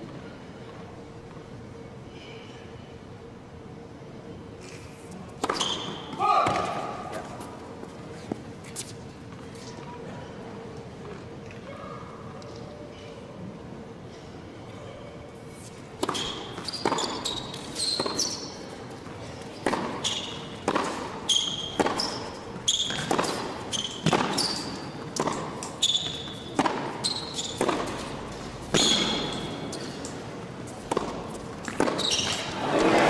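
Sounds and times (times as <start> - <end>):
rackets striking tennis ball: 5.4 - 7.5, 16.0 - 33.0
shoe squeaks: 5.5 - 6.1, 15.5 - 18.8, 19.5 - 30.1, 31.4 - 32.6.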